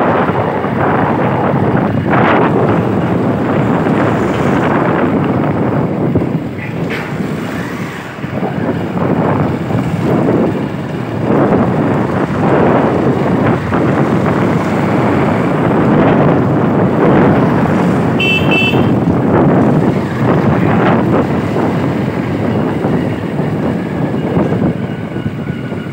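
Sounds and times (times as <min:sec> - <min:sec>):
motorbike engine and road noise: 0:00.0 - 0:25.9
wind buffeting microphone: 0:00.0 - 0:25.9
vehicle horn beep: 0:18.2 - 0:19.0.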